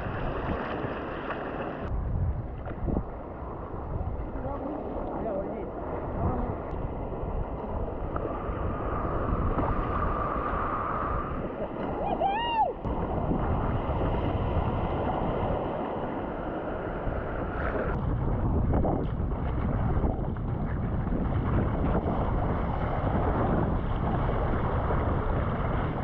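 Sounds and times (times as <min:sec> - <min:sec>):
ocean water washing: 0:00.0 - 0:26.0
wind on microphone: 0:00.0 - 0:26.0.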